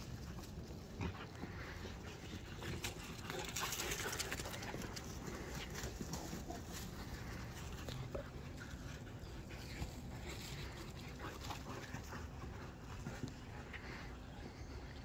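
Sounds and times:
dog panting: 0.2 - 15.0.

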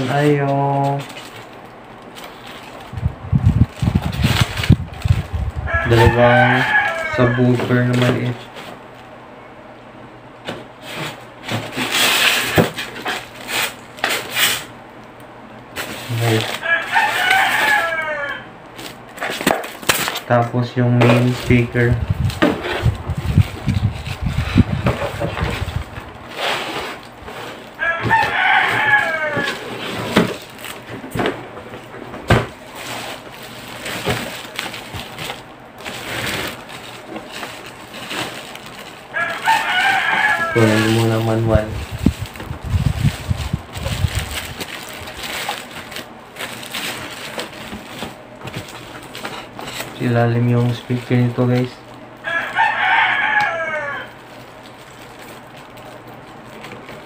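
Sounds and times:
plastic wrapping crinkling: 0.0 - 9.1, 10.8 - 18.0, 18.7 - 20.4, 21.0 - 57.0
rooster crowing: 5.6 - 8.0, 16.4 - 18.6, 27.7 - 30.1, 39.1 - 41.4, 52.2 - 54.3.

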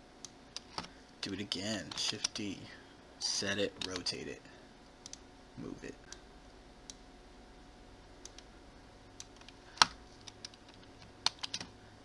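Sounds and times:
keyboard and mouse clicking: 9.2 - 11.7.

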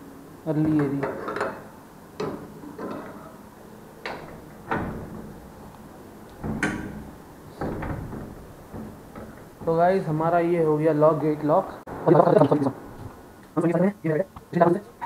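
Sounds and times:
gate clanking shut: 0.7 - 11.3.

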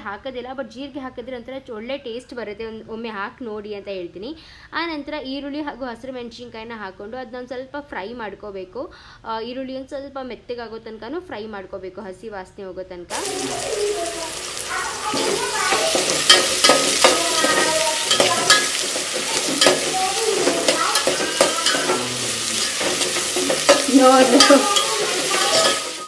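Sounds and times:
onions sizzling in oil: 13.1 - 26.0
spatula scraping metal pot: 15.1 - 26.0.

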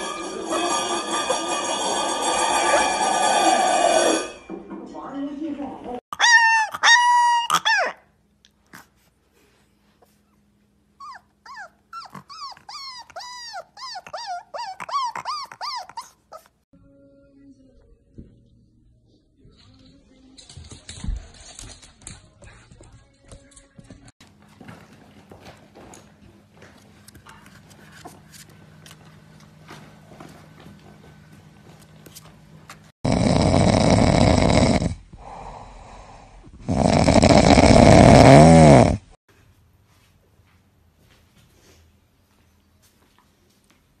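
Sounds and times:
puppy yipping and howling: 6.1 - 8.1, 11.0 - 16.6
dog snoring: 33.0 - 39.2.

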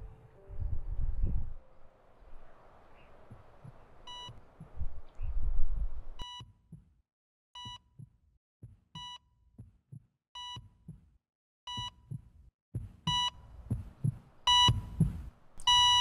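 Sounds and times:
low rumble: 0.0 - 2.6
heart monitor beeping: 3.3 - 5.0, 6.2 - 6.9, 7.6 - 11.1, 11.7 - 16.0
low heartbeat thump: 3.3 - 6.9, 7.6 - 11.1, 11.7 - 16.0.

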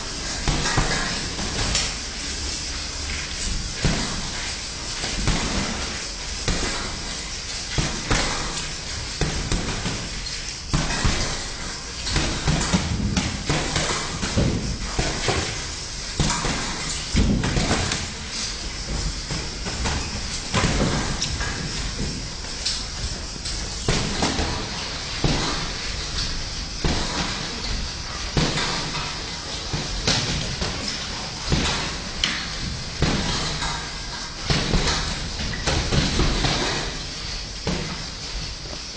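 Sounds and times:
boxing gloves punching: 5.2 - 7.1, 9.2 - 10.1, 10.7 - 15.6, 23.9 - 25.8, 26.8 - 27.6, 28.4 - 29.0, 29.7 - 38.2.

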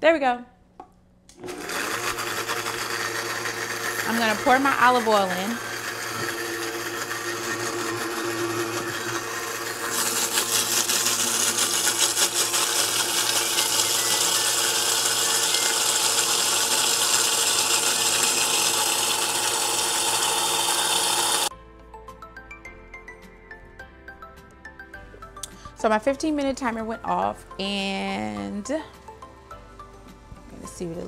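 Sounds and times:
blender whirring: 1.3 - 21.5.

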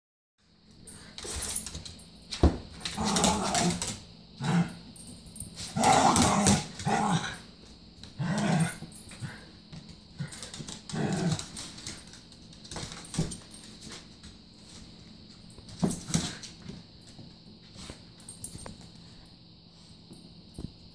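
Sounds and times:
dogs play-growling: 2.8 - 5.0, 5.6 - 9.5, 10.1 - 12.2.

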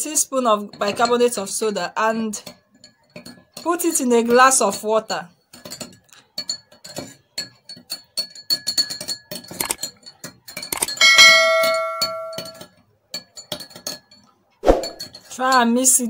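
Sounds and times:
teaspoon clinking in glass: 7.4 - 14.2
notification bell chime: 11.0 - 12.6.

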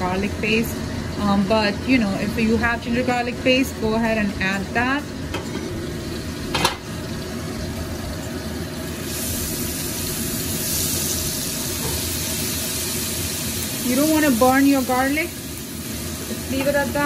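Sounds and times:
garlic sizzling in hot oil: 0.0 - 17.0
metal pot lid clank: 6.5 - 6.9.

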